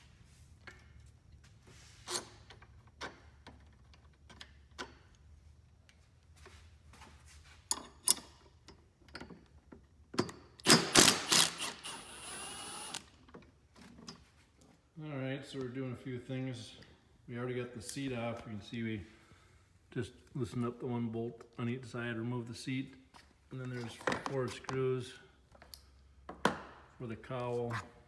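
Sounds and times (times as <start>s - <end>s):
tools clicking and knocking: 2.1s - 5.3s, 7.7s - 11.8s
cordless drill driving bolt: 10.6s - 13.1s.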